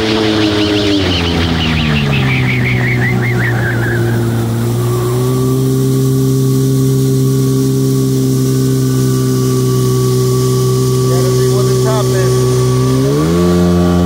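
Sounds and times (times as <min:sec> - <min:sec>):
jet ski engine slowing: 0:00.0 - 0:14.0.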